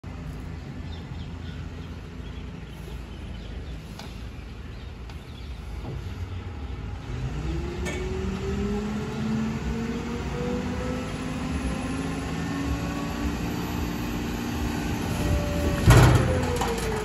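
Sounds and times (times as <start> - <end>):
diesel truck engine rumbling: 0.0 - 17.0
engine whine rising in pitch: 6.4 - 17.0.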